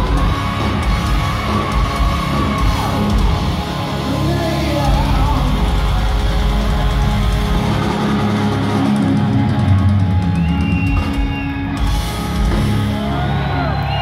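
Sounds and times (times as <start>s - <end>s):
live heavy metal band: 0.0s - 14.0s.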